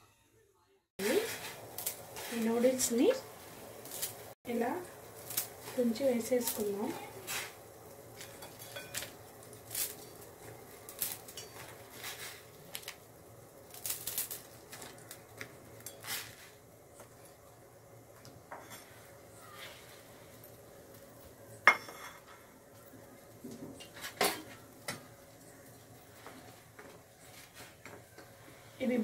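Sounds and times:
faint steady background noise: 0.0s - 29.0s
clinks against metal pot: 8.2s - 9.2s, 11.2s - 11.7s.

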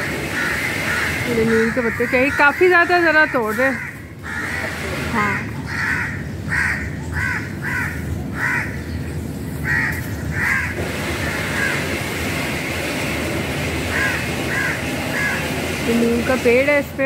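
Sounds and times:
crows cawing: 0.0s - 9.0s, 9.6s - 12.1s, 13.9s - 15.6s.

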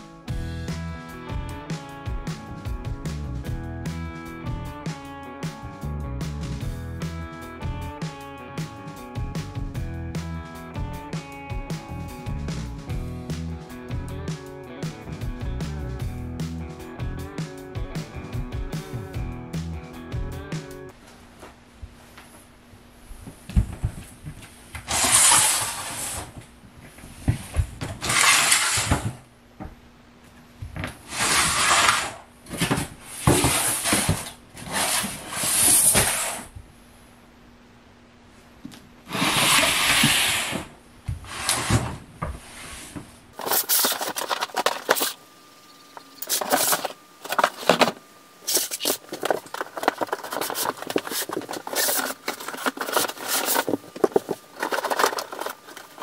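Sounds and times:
plastic bins scraping on hard floor: 24.8s - 26.4s, 27.1s - 29.2s, 30.9s - 36.5s, 39.0s - 45.2s, 46.2s - 56.0s
cardboard box flaps rustling: 46.3s - 56.0s.

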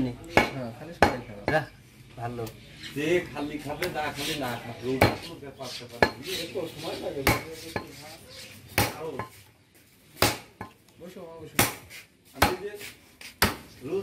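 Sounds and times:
knife chopping meat on wood: 0.3s - 1.6s, 5.0s - 5.3s, 7.2s - 8.0s, 8.7s - 9.3s, 10.2s - 10.8s, 11.6s - 13.7s.

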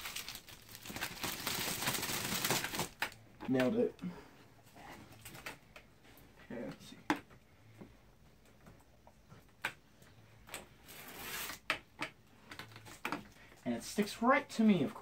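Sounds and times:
plastic wrap rustling: 0.0s - 3.2s.

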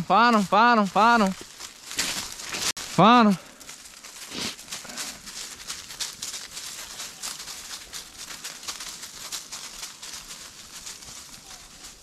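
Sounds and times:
footsteps crunching dry leaves: 0.0s - 12.0s.

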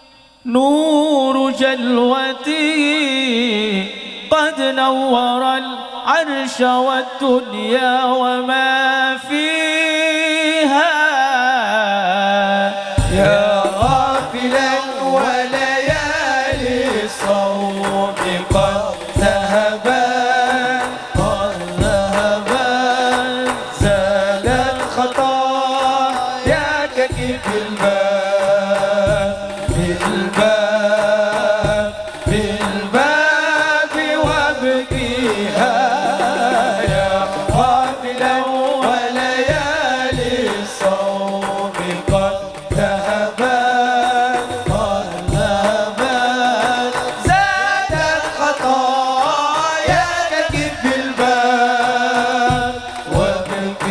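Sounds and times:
men singing melismatically: 0.0s - 53.9s
hand drums beating: 13.0s - 53.9s.

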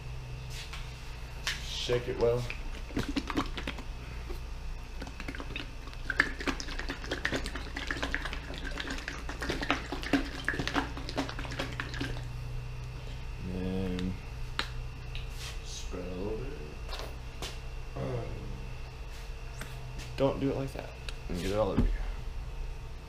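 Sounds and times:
plastic bottle of liquid shaken: 2.7s - 3.8s.

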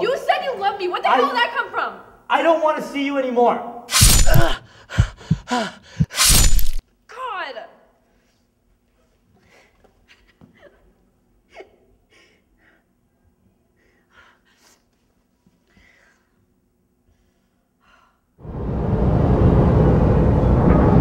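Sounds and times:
gasping breaths and sobs: 4.2s - 6.2s.

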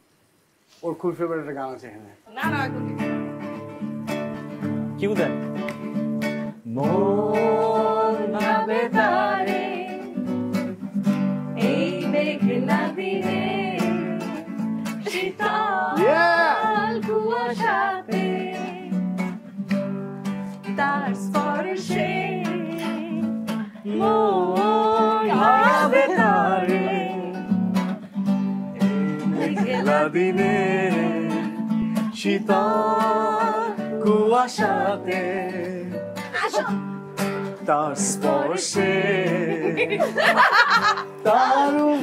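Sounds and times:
nylon-string guitar strumming: 2.4s - 42.0s.

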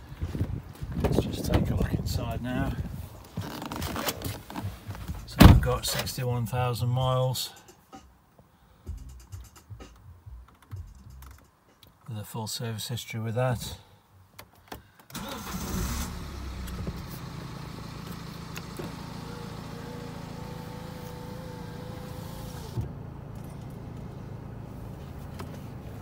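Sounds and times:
diesel engine starting and idling: 15.1s - 26.0s.

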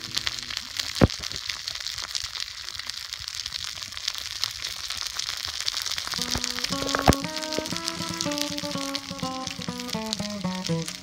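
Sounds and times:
meat sizzling in a frying pan: 0.0s - 11.0s
sharp pop: 6.2s - 11.0s.

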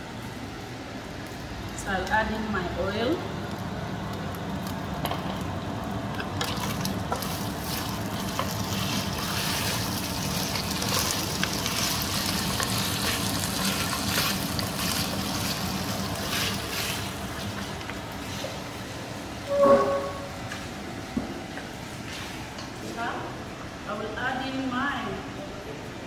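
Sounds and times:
meat sizzling in hot oil: 4.5s - 18.4s.

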